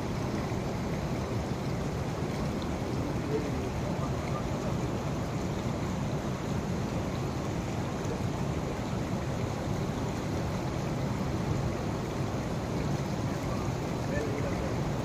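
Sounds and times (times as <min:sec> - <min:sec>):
floodwater rushing across road: 0:00.0 - 0:15.0.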